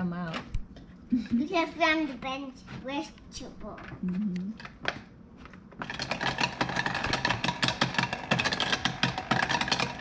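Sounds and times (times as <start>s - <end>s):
toy blender whirring: 5.8s - 10.0s.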